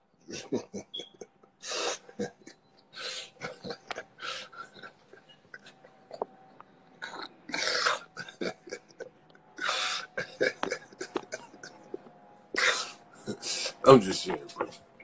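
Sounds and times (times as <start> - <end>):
man laughing breathily: 0.3 - 6.1, 8.2 - 13.8.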